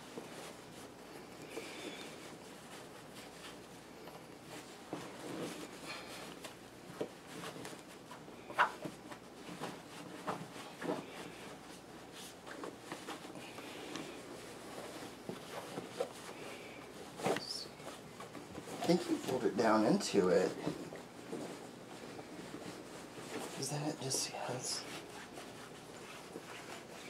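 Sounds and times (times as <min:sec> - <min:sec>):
costume rustling: 0:04.4 - 0:27.0.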